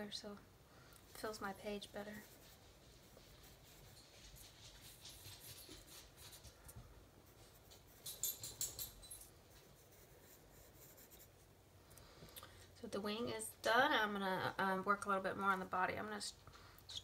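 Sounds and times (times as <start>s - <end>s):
pencil scratching on paper: 1.7s - 6.5s, 9.6s - 11.5s.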